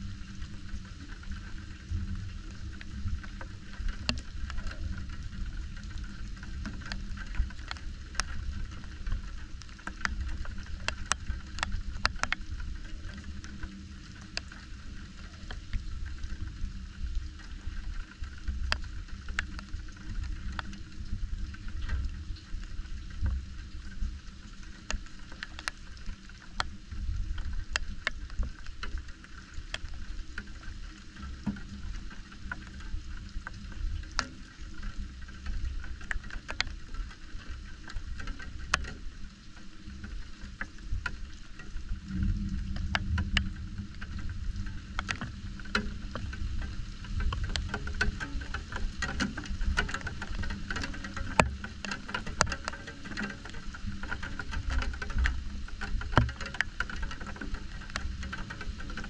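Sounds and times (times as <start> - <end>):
steady rain: 0.0 - 59.0
drops ticking on a surface: 1.9 - 59.0
low rumble: 40.9 - 49.0.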